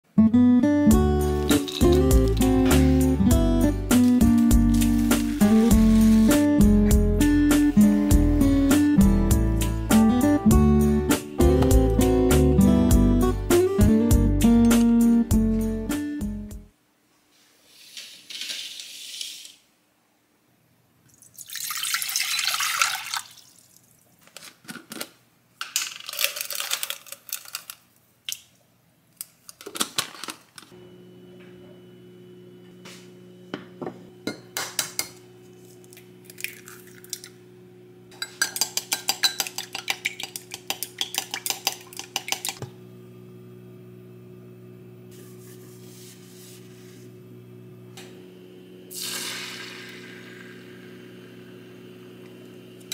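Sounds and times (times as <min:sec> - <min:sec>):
electrical hum of cooktop: 0:00.9 - 0:09.5, 0:16.6 - 0:52.9
utensils and glassware clinking: 0:01.4 - 0:03.0, 0:38.1 - 0:42.6
chopsticks beating eggs in glass: 0:38.2 - 0:42.6.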